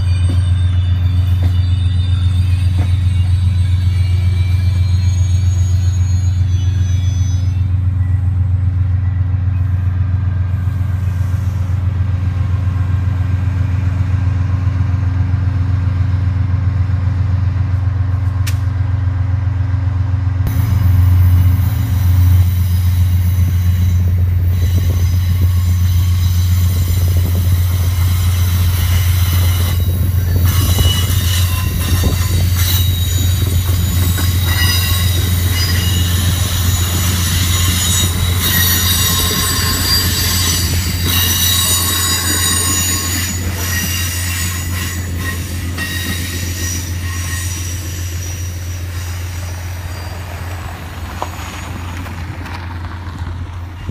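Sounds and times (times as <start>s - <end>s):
wheel flange squeal: 0.0s - 9.8s, 22.2s - 52.0s
train cars rumbling past: 0.0s - 53.9s.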